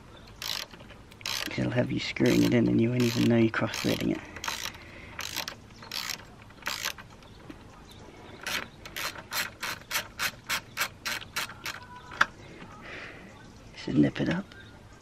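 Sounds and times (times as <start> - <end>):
socket ratchet clicking: 0.3 - 1.6, 2.2 - 7.1, 8.4 - 11.9.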